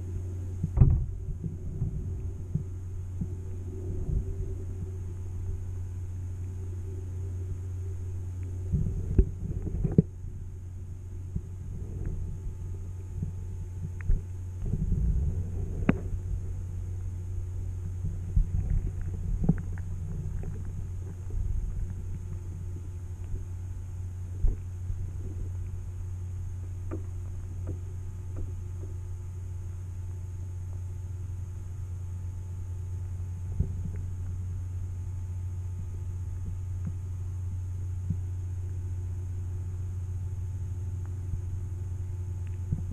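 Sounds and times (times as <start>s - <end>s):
underwater rumble bursts: 0.0s - 30.3s
muffled underwater hum: 0.0s - 42.9s.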